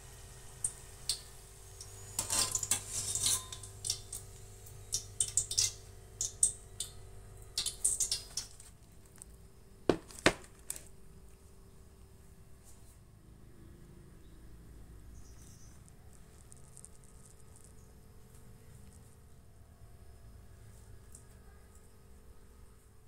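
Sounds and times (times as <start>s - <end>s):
wire skimmer clinking on metal wok: 1.1s - 6.9s.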